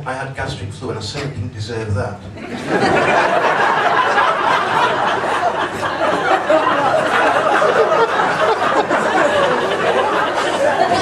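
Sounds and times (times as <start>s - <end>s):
audience laughing: 2.4s - 11.0s
chatter: 3.5s - 11.0s.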